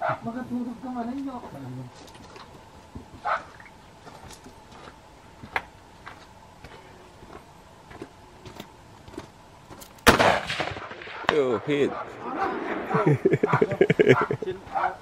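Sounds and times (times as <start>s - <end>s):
rifle shot with echo: 10.1s - 13.0s.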